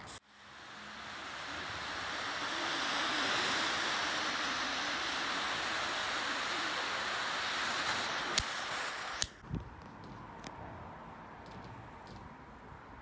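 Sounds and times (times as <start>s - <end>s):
flame jet hissing: 0.0s - 9.4s.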